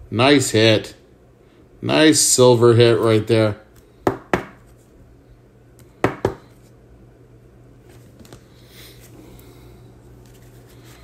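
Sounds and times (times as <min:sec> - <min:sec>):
low steady hum: 0:00.0 - 0:11.0
cards tapping on table: 0:06.0 - 0:06.4
cards rustling: 0:07.9 - 0:11.0.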